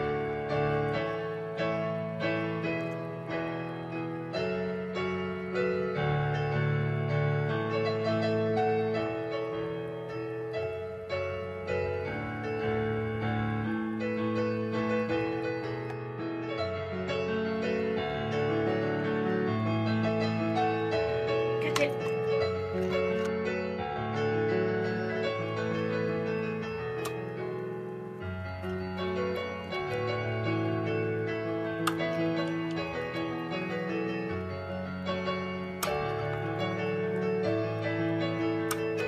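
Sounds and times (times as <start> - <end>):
slow piano music: 0.0 - 39.0.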